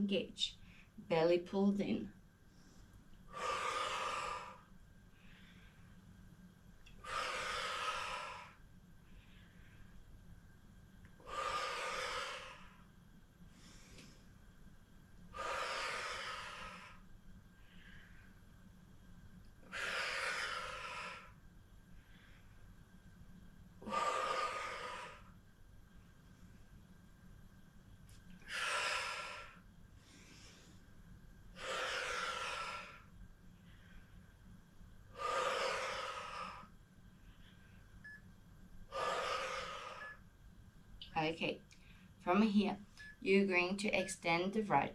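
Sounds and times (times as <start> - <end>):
woman inhaling: 2.5 - 6.0, 6.8 - 10.0, 11.2 - 12.9, 15.3 - 18.4, 23.8 - 25.4, 31.6 - 34.2, 35.1 - 36.7, 38.9 - 40.2
woman exhaling forcefully: 3.3 - 4.6, 7.0 - 8.6, 11.2 - 12.8, 15.3 - 17.0, 19.6 - 21.3, 23.8 - 25.3, 28.4 - 29.6, 31.6 - 33.0, 35.1 - 36.7, 38.9 - 40.2.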